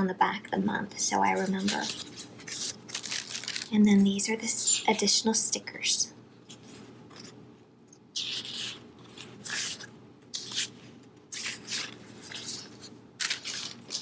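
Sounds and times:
paper and plastic rustling: 1.3s - 4.2s, 8.3s - 14.0s.

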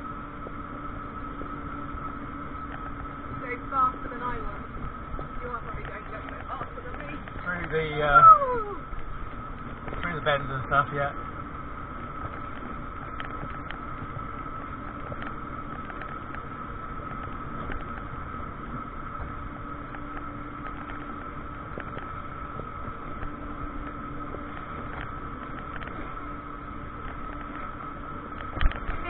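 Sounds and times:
constant high whine: 0.0s - 29.0s
road and wind noise: 0.0s - 29.0s
faint ticks: 12.1s - 18.2s, 19.0s - 29.0s.

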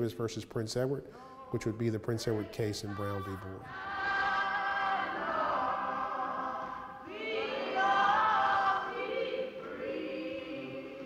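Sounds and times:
choir singing in harmony: 1.4s - 11.0s.

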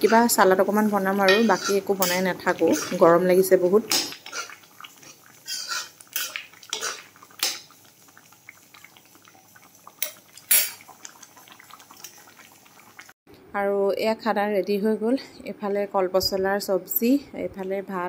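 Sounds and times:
metal ladle scraping a pot: 1.2s - 3.1s, 4.0s - 7.6s.

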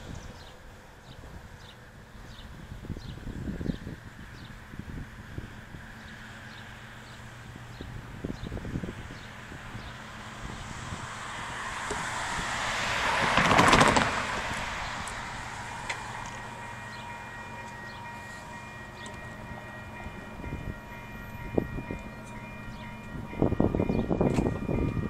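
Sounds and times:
low rumble of train: 0.0s - 25.0s
distant train horn chord: 14.8s - 25.0s.

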